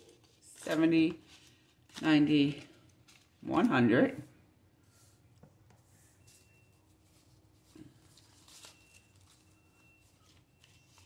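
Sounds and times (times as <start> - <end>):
paper banknotes rustling: 0.0 - 4.0, 5.9 - 11.0.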